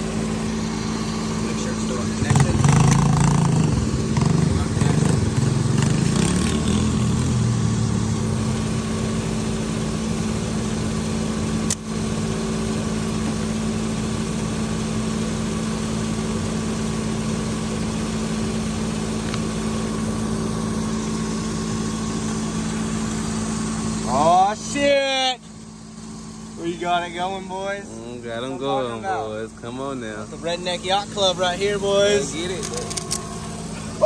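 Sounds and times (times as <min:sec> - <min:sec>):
truck engine idling: 0:00.0 - 0:06.2, 0:07.0 - 0:34.0
sharp click: 0:32.6 - 0:33.3.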